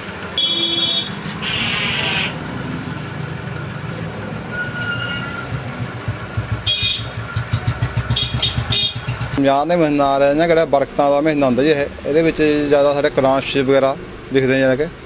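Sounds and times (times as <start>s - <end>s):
engine chugging in pulses: 0.0s - 9.9s
vehicle engine running: 0.0s - 15.0s
car horn: 0.4s - 2.4s, 4.5s - 5.6s, 6.6s - 9.2s.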